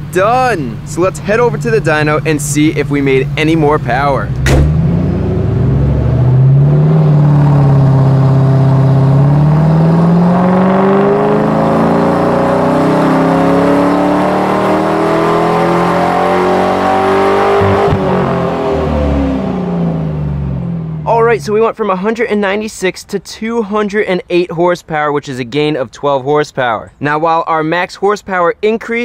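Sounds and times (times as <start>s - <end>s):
car engine revving: 0.0s - 21.6s.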